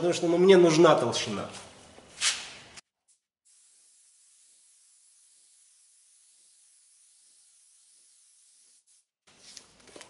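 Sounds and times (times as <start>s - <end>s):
paint spray gun hissing: 3.5s - 9.1s.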